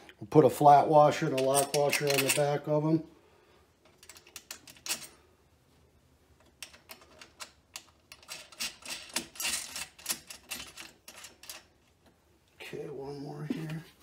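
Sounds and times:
metal bolts and washers clicking: 1.2 - 2.6, 3.8 - 5.2, 6.4 - 11.8.

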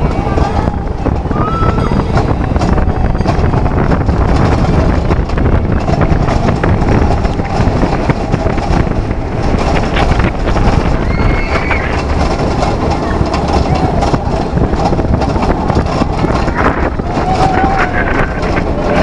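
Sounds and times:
roller coaster rumbling and rattling: 0.0 - 19.0
high squeal: 10.9 - 12.1.

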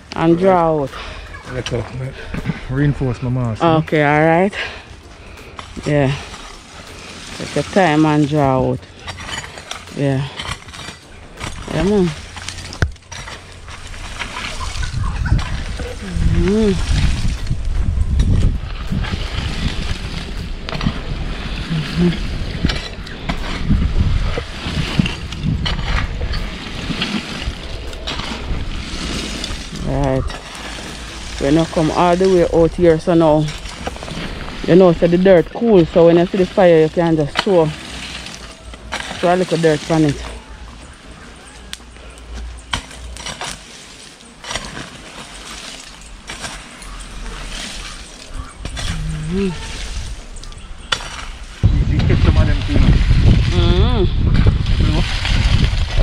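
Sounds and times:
charcoal being raked: 0.0 - 56.0
wind buffeting microphone: 13.4 - 35.8, 47.0 - 56.0.

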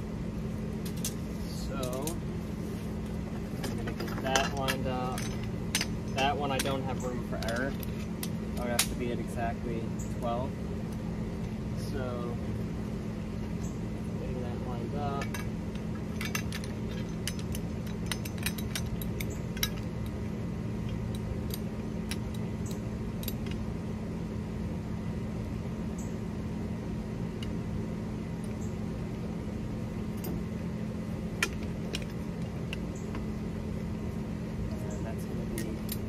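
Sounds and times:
steady low hum: 0.0 - 36.0
light metallic clinks: 3.6 - 9.2.

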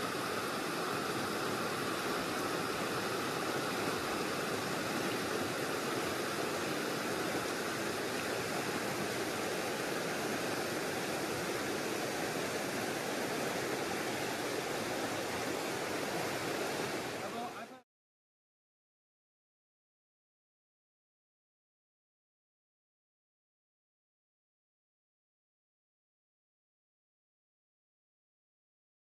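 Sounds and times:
creek water rushing over rocks: 0.0 - 17.8.

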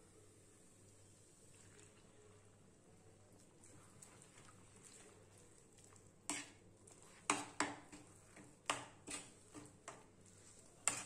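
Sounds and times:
metal spatula scraping on iron pan: 6.3 - 11.0.

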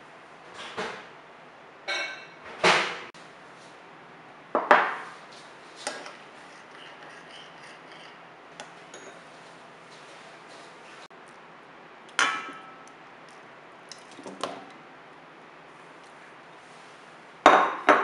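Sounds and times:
spoon clinking in bowl: 8.9 - 9.2.

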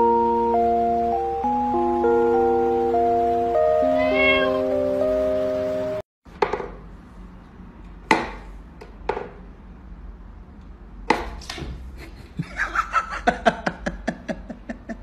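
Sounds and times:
background music: 0.0 - 6.0.

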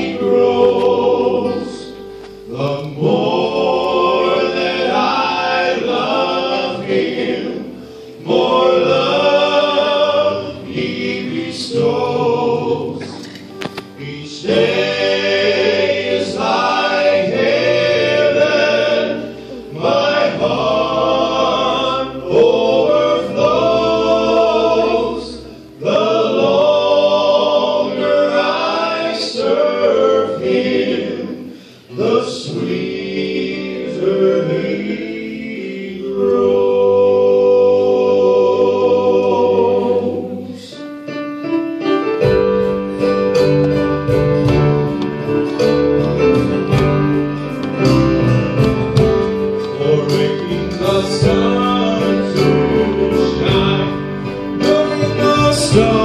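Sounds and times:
congregation and choir singing hymn: 0.0 - 56.0
instrumental accompaniment: 0.0 - 56.0
strummed guitar rhythm with bass: 43.4 - 49.7.

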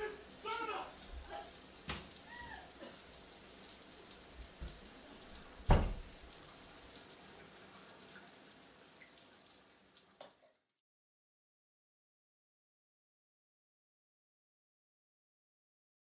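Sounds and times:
patter of falling water: 0.0 - 10.8
loud thud: 5.7 - 6.1.

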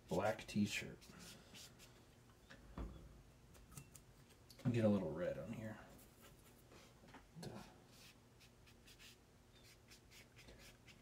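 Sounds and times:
paintbrush strokes on paper: 0.6 - 2.0, 7.6 - 11.0.

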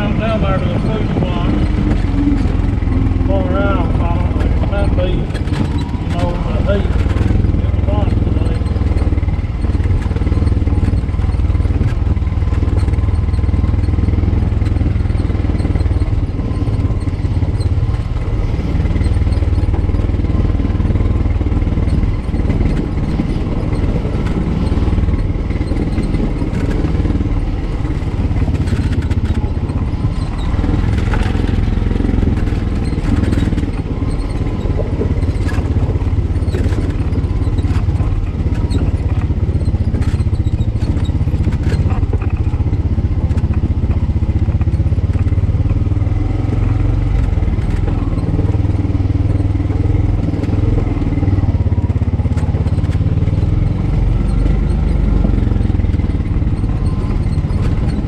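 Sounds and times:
utility vehicle engine running: 0.0 - 58.0
vehicle body rattling: 0.0 - 58.0.

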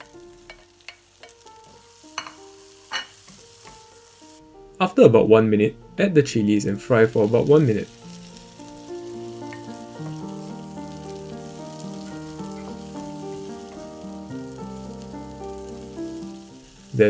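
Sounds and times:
oil sizzling in a wok: 0.0 - 4.6, 6.8 - 17.0
background music: 0.0 - 17.0
wooden spatula stirring: 7.2 - 13.9.

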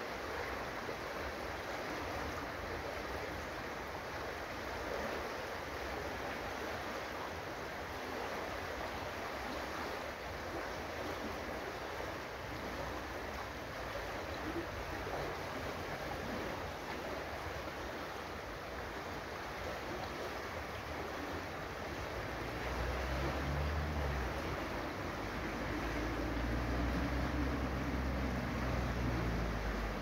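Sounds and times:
river rushing over rocks: 0.0 - 30.0.

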